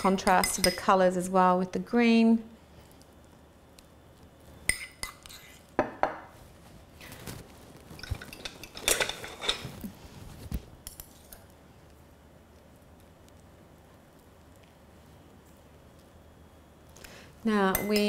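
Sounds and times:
cutlery clinking on ceramic: 8.0s - 9.7s
cutlery scraping and knocking: 8.0s - 9.8s.

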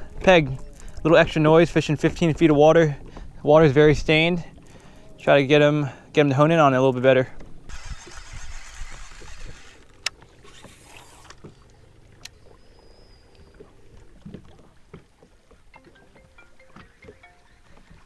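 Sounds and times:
light wind: 0.0s - 18.0s
water lapping against boat hull: 0.0s - 18.0s
sharp clicks: 7.7s - 11.5s.

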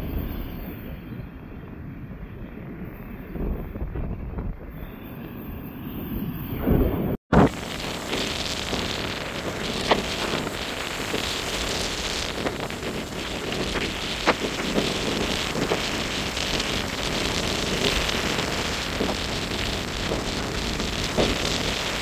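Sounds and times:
wind buffeting microphone: 0.0s - 22.0s
rough surf washing up beach: 6.7s - 22.0s.

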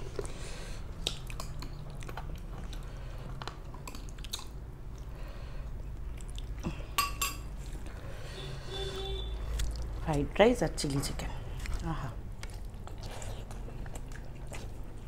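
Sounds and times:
people chewing food: 0.0s - 8.3s, 9.4s - 15.0s.

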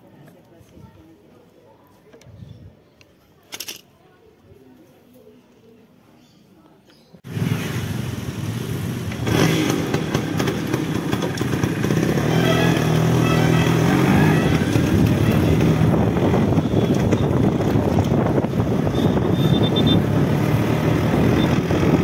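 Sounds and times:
two-stroke motorcycle engine: 7.3s - 22.0s.

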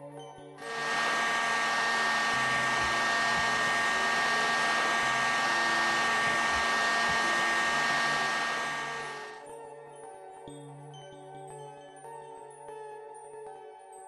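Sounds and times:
heat gun blowing hot air: 0.6s - 9.4s
high whine: 0.6s - 9.4s.

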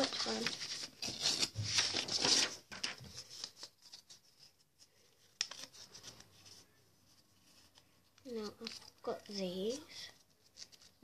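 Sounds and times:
paper rustling and tearing: 0.0s - 4.6s, 7.4s - 11.0s.

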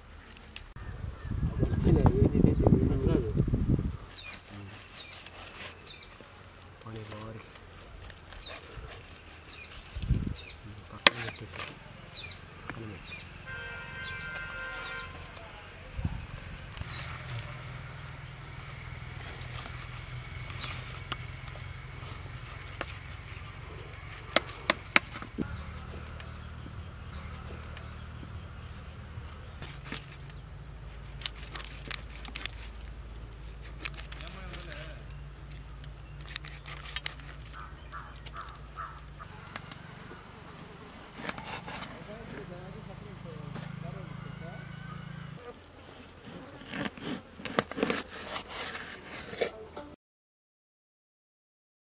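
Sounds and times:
steady low buzz: 11.8s - 36.2s
fish skin scraping and tearing: 29.6s - 39.2s, 46.2s - 49.6s
knife cutting and scraping fish: 36.1s - 39.1s, 41.1s - 42.4s, 46.2s - 49.6s.

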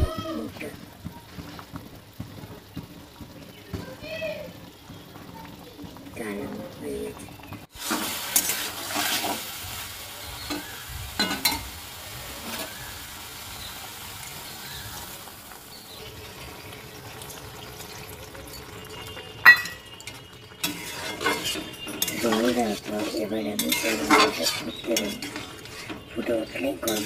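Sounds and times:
food sizzling in a pan: 0.0s - 27.0s
metal spatula scraping a pan: 7.8s - 9.7s, 12.4s - 12.9s, 19.6s - 27.0s.

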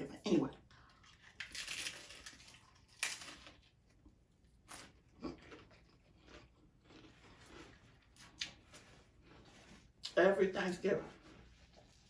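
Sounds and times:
soft chewing: 0.5s - 10.2s, 11.1s - 12.0s
taco shell crunching: 0.7s - 10.2s.

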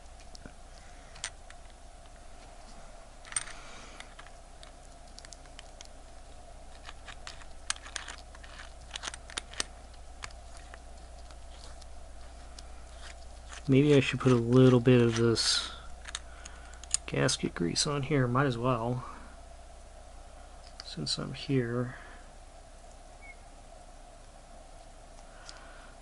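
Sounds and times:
faint metal clicks: 6.7s - 17.2s, 25.1s - 25.7s.

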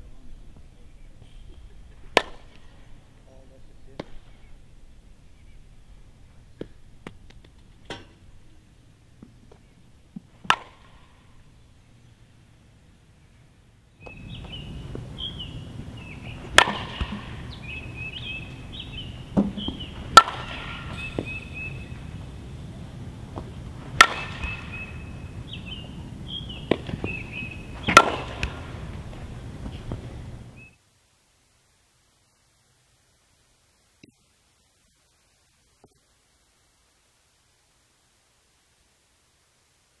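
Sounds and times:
birds chirping: 0.0s - 30.8s
bat hitting balls: 2.0s - 2.9s, 4.0s - 4.3s, 6.6s - 8.3s, 9.2s - 11.6s, 14.0s - 30.6s.

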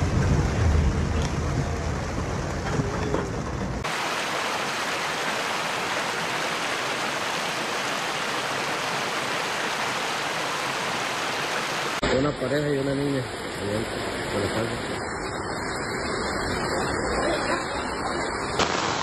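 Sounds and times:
car rumbling through rain: 0.0s - 4.6s
floodwater rushing: 3.8s - 19.0s.

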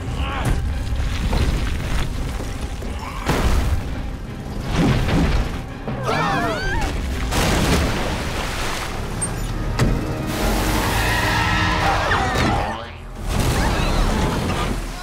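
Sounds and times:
dramatic cartoon chase music: 2.8s - 7.9s, 9.6s - 15.0s.

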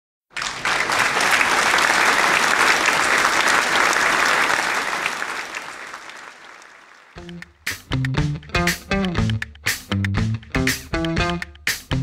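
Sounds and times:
people clapping: 0.3s - 9.4s.

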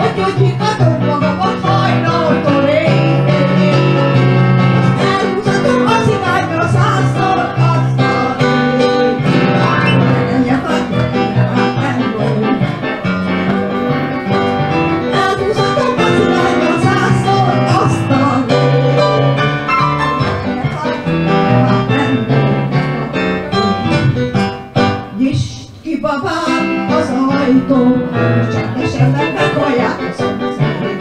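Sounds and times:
woman singing into microphone: 0.0s - 3.9s, 4.9s - 8.4s, 9.5s - 12.9s, 15.0s - 18.6s, 25.1s - 31.0s
electronic keyboard: 0.0s - 25.2s.

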